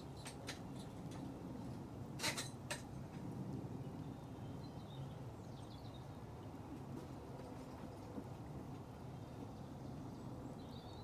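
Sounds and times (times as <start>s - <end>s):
bird chirping: 4.0s - 6.2s, 9.1s - 11.0s.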